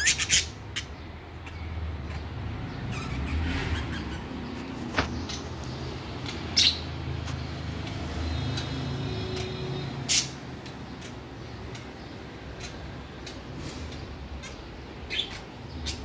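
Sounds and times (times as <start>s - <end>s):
bird squawks: 0.0s - 1.6s, 2.9s - 4.5s, 9.3s - 10.4s, 14.4s - 16.0s
budgerigars chirping: 0.0s - 4.6s, 6.2s - 6.9s, 10.1s - 16.0s.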